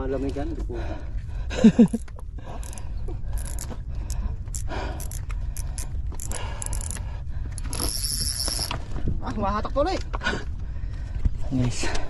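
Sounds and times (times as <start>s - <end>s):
wind rumbling on microphone: 0.7s - 12.0s
fishing reel clicks and rustles: 2.6s - 8.8s.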